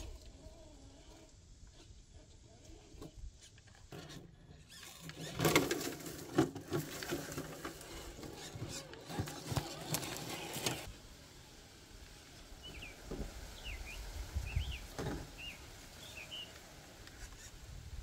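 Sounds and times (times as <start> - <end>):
electric motor whining: 7.6 - 11.0.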